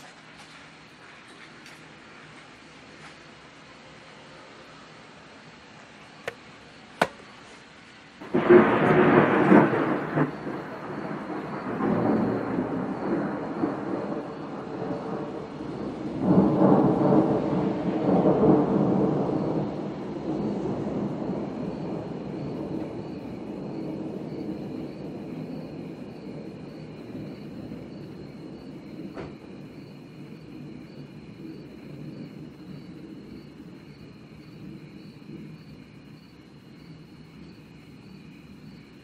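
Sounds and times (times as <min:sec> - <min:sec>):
thunder rolling: 0:08.2 - 0:33.9.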